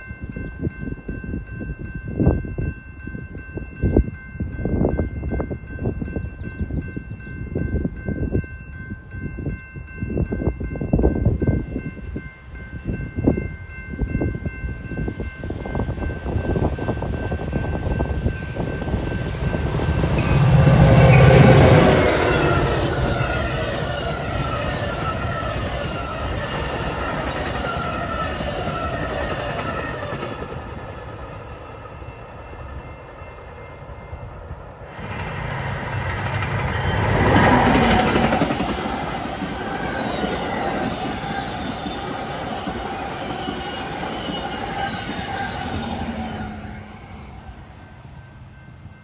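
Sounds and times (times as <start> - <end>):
diesel locomotive passing: 0.0 - 49.0
passenger train passing: 0.0 - 49.0
high wheel squeals: 20.2 - 30.2, 36.5 - 47.2
wheel-on-rail noise: 34.8 - 47.4.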